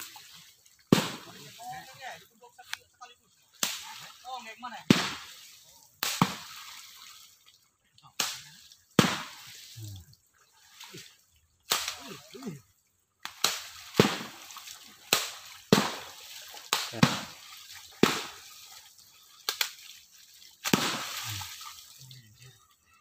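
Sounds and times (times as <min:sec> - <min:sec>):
poles slapping water: 0:00.0 - 0:22.9.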